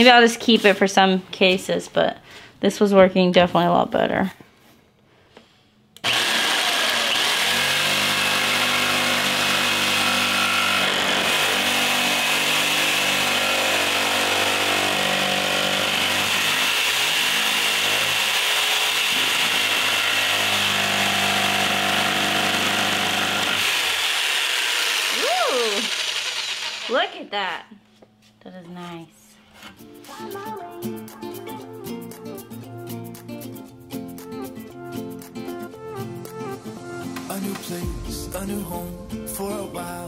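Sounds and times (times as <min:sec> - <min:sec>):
jigsaw cutting wood: 0:06.0 - 0:27.2.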